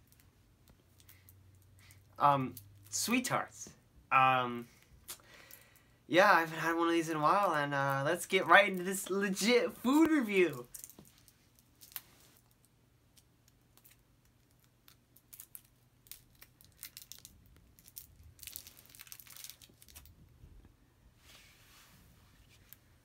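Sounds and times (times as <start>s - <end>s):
candy wrapper crinkling and tearing: 8.2s - 20.2s.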